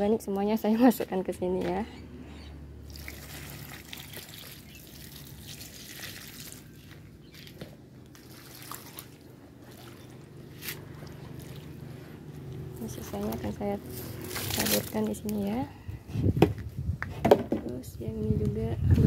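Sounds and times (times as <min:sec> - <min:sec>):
water trickling and dripping: 0:02.9 - 0:10.4.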